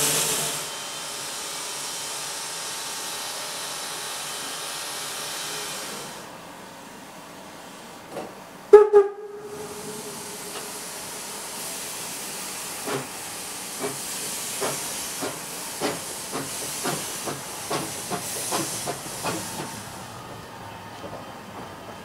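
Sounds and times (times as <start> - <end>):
steam hiss: 0.0 - 6.3, 9.4 - 20.3
steam whistle: 8.7 - 10.6
steam locomotive exhaust chuffs: 8.7 - 20.3.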